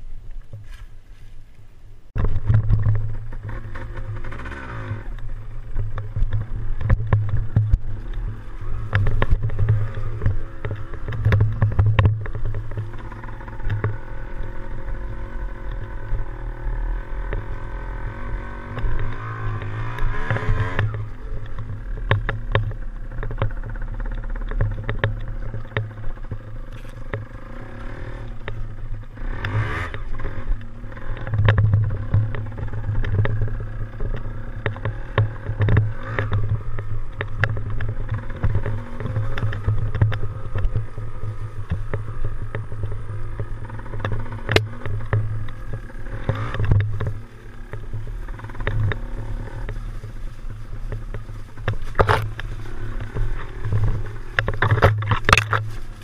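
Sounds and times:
engine knocks and rattles: 2.1 - 56.0
dirt bike engine revving: 2.2 - 56.0.

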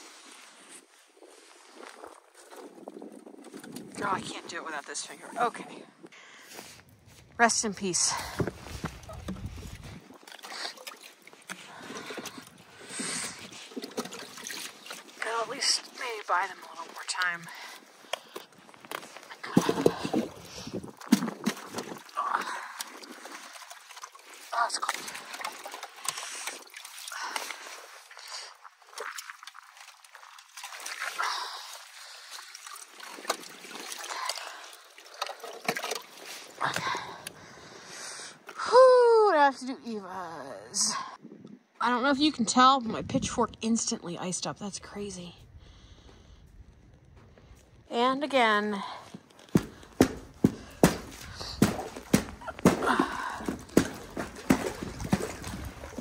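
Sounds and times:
water sloshing and splashing: 0.0 - 38.6, 47.5 - 56.0
ice cracking: 8.3 - 31.3, 49.3 - 56.0
ice knocking: 49.4 - 56.0.

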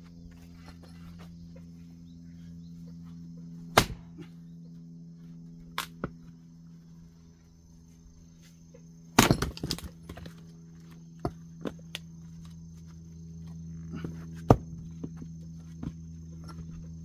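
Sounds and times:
axe chopping firewood: 3.7 - 4.3, 9.1 - 10.4, 14.0 - 15.1.

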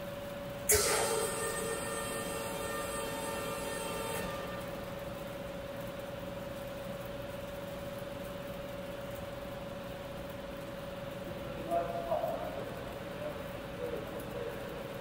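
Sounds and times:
steady single-pitched whine: 0.3 - 7.3.

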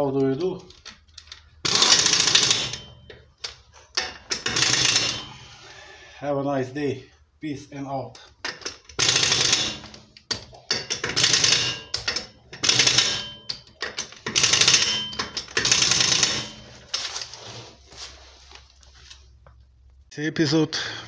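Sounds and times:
pneumatic impact wrench rattling: 0.9 - 3.0, 3.9 - 5.4, 8.4 - 17.3.

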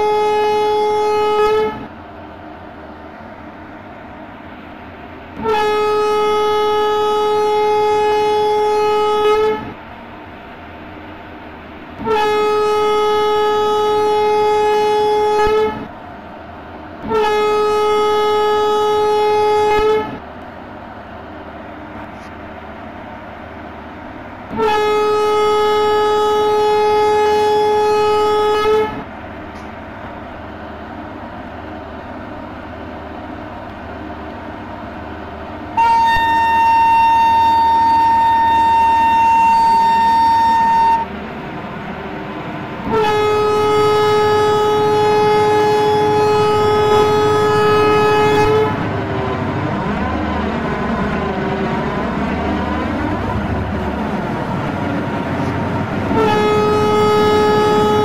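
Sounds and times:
train horn blasts: 0.0 - 1.9, 5.3 - 9.8, 12.0 - 15.9, 17.0 - 20.2, 24.5 - 29.7, 35.7 - 41.2, 42.8 - 58.0
train running: 0.0 - 58.0.

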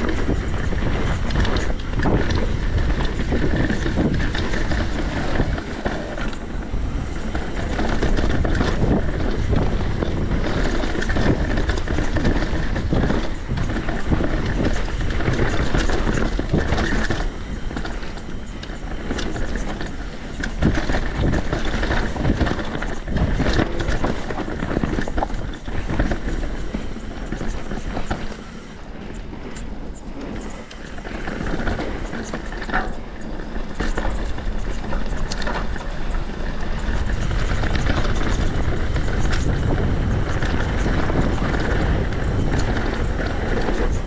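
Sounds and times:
bike knocks and rattles: 0.0 - 33.0
bike tyre noise on dirt: 0.0 - 44.0
wind on microphone: 0.0 - 44.0.

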